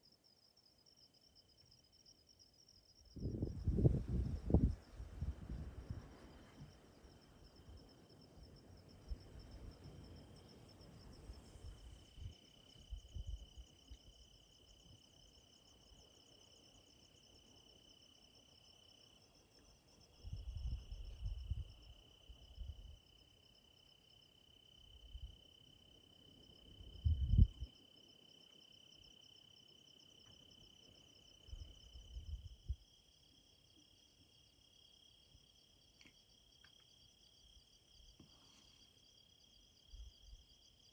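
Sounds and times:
insects chirring: 0.0s - 40.9s
low rumbles on microphone: 3.2s - 6.8s, 27.0s - 27.7s.

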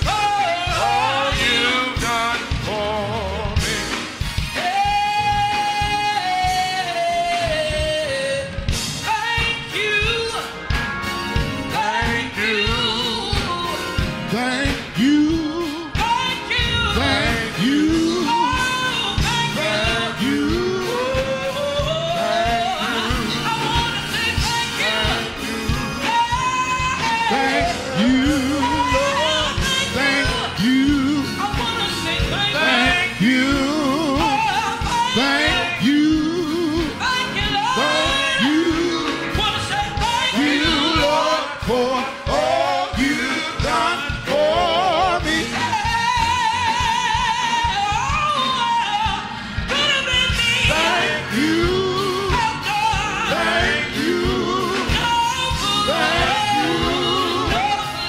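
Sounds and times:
keyboard with steady beat: 0.0s - 58.0s
woman singing into microphone: 11.7s - 14.1s, 15.0s - 41.5s, 45.2s - 58.0s.

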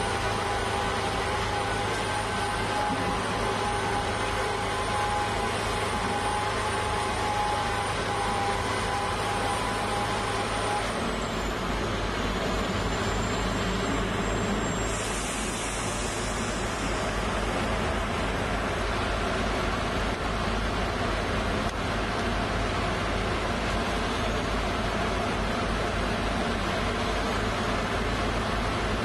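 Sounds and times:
piling rig machinery noise: 0.0s - 29.0s
hiss: 13.1s - 17.8s.

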